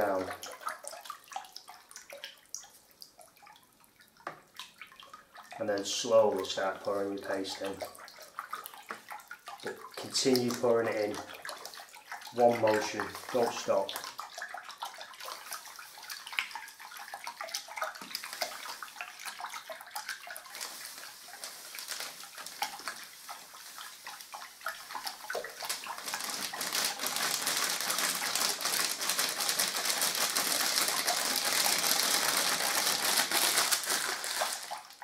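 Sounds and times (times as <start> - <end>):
stick stirring water in bucket: 0.0 - 35.0
paste flakes pouring: 19.8 - 35.0.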